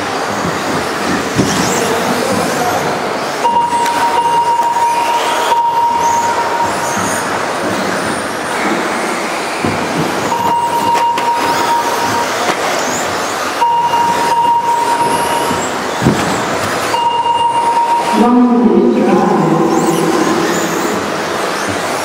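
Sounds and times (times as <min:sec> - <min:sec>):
model buggy motors and tyres: 0:00.0 - 0:04.2, 0:19.8 - 0:22.0
high-pitched tone: 0:03.4 - 0:07.0, 0:10.3 - 0:12.5, 0:13.6 - 0:15.8, 0:16.9 - 0:21.3.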